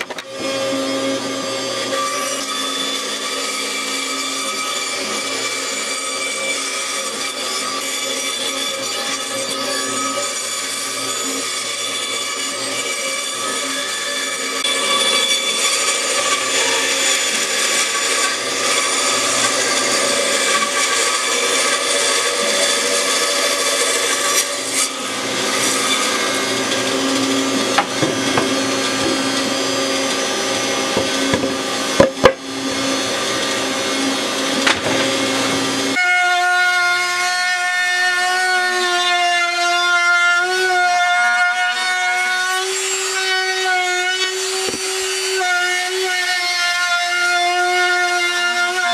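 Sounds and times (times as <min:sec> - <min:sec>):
router motor whining: 0:00.0 - 0:02.0, 0:08.9 - 0:36.0, 0:42.8 - 0:47.0
band saw cutting plywood: 0:00.0 - 0:48.9
sharp knocks: 0:27.8 - 0:29.2, 0:31.0 - 0:32.4.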